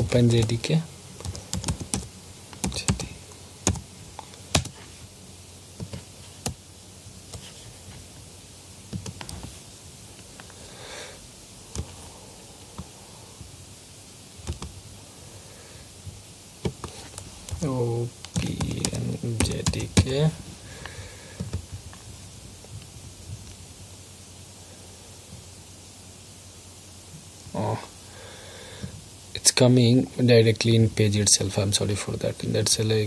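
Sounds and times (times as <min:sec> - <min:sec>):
computer keyboard keystrokes: 0:01.2 - 0:03.8, 0:04.5 - 0:04.8, 0:14.4 - 0:14.7.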